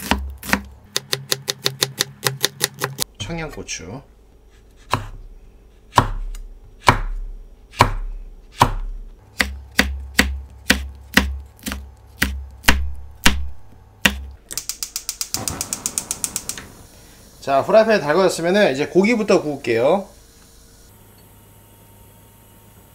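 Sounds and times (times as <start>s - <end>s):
knife chopping on wooden board: 0.0s - 3.0s, 4.8s - 5.2s, 5.9s - 14.3s
rapid clicks: 14.5s - 16.6s.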